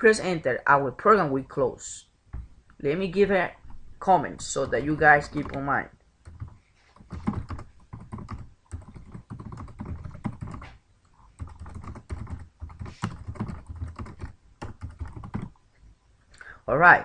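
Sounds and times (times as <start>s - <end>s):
typing on computer keyboard: 6.2s - 10.8s, 11.4s - 15.5s.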